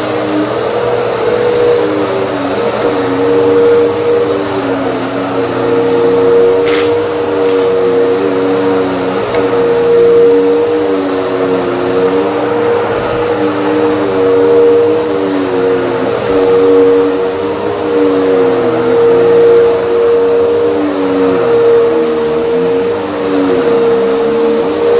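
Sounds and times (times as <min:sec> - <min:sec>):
vacuum cleaner motor hum: 0:00.0 - 0:24.9
vacuum whine dipping and rising: 0:00.0 - 0:24.9.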